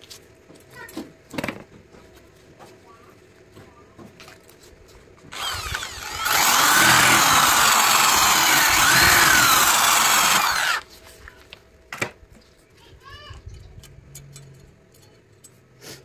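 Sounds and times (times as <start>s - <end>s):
angle grinder grinding steel: 5.3s - 10.8s.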